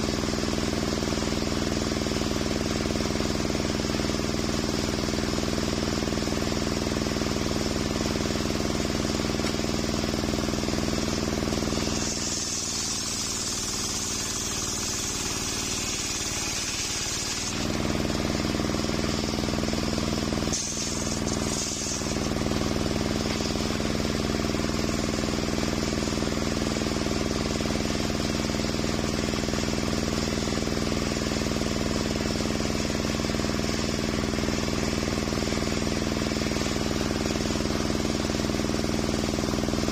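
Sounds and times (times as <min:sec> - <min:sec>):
saw blade hissing through wood: 0:10.9 - 0:26.2.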